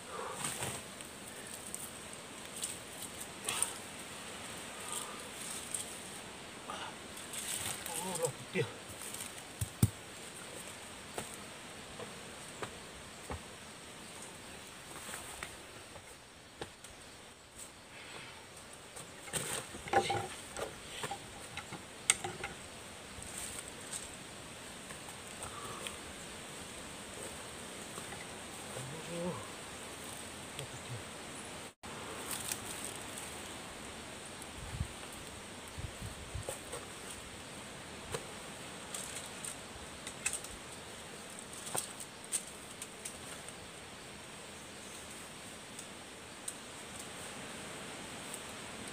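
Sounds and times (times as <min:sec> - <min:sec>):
rustling in leaves and brush: 0:00.0 - 0:48.9
steady hiss: 0:00.0 - 0:48.9
wooden sticks knocking together: 0:19.8 - 0:22.6.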